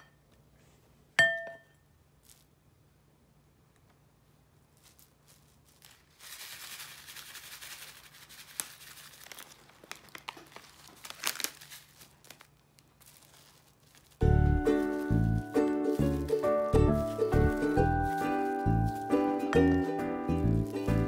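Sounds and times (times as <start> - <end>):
plastic cling wrap crinkling: 4.5 - 21.0.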